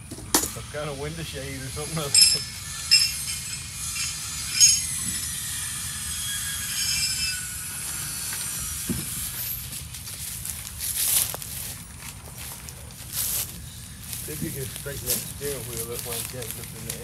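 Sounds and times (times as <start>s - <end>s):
car jack squealing: 0.0s - 9.8s.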